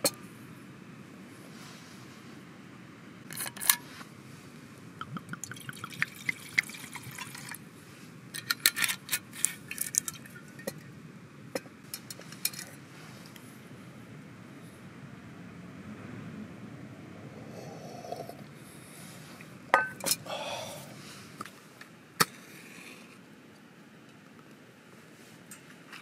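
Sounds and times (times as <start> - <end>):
glass clinking on metal mug: 19.7 - 20.2
clinks and knocks: 19.8 - 20.2.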